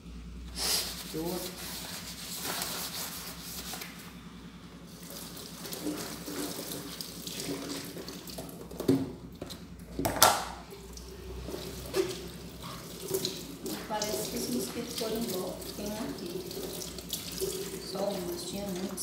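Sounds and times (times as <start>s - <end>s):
tap water running into sink: 5.0s - 19.0s.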